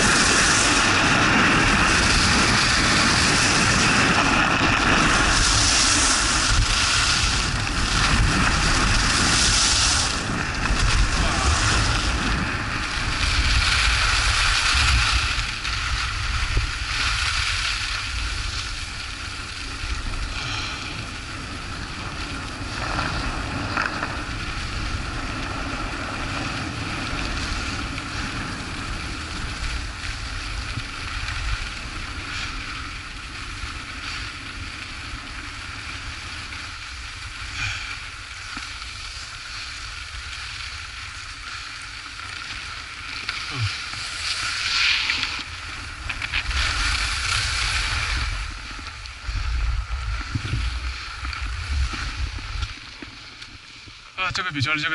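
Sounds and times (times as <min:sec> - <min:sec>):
wind buffeting microphone: 0:00.0 - 0:33.2, 0:45.0 - 0:53.0
skis scraping on snow: 0:00.0 - 0:54.9.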